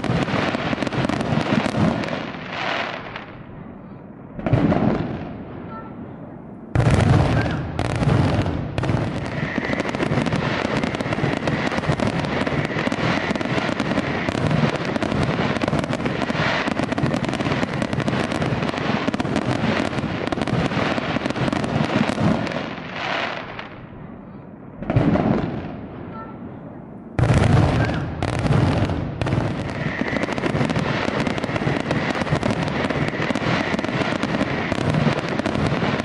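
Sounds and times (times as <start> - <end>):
fireworks bangs and crackles: 0.0 - 36.0
loud firework boom: 6.7 - 13.3.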